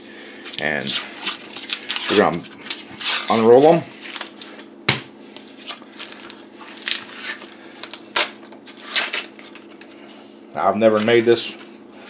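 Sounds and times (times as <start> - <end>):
paper wrapper tearing: 0.8 - 4.3, 5.6 - 9.8.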